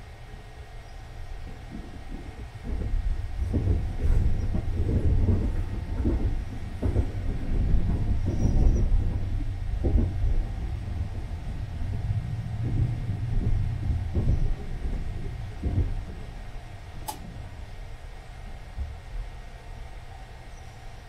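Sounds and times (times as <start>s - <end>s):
train low rumble: 0.0s - 21.0s
wheels knocking: 1.4s - 17.2s.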